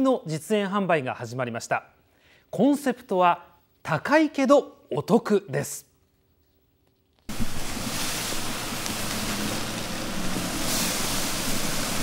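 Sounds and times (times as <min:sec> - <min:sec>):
fish sizzling on a grill: 0:07.3 - 0:12.0.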